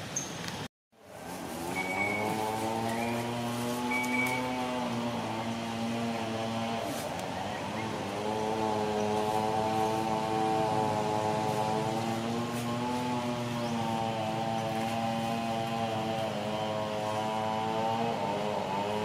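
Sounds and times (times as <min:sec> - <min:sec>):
engine droning: 0:01.0 - 0:19.0.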